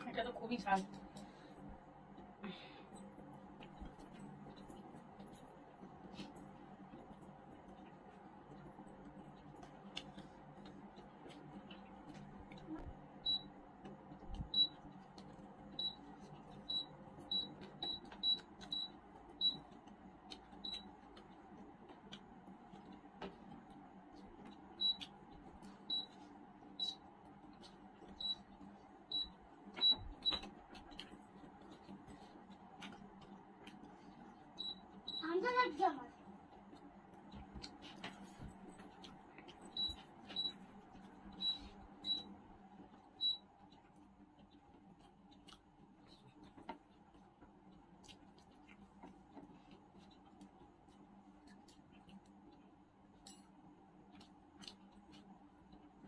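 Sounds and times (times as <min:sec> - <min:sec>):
low steady hum: 0:00.0 - 0:56.0
chewing fried chicken: 0:00.7 - 0:56.0
biting and chewing: 0:42.7 - 0:56.0.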